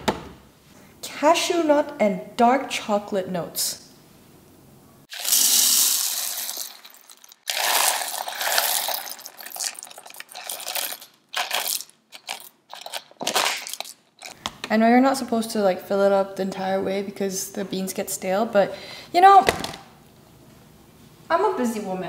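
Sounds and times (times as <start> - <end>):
coffee beans pouring into hopper: 5.1 - 11.9.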